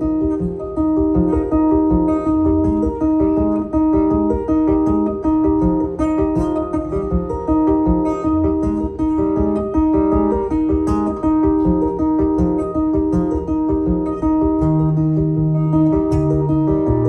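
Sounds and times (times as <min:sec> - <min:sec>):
acoustic guitar picking: 0:00.0 - 0:17.0.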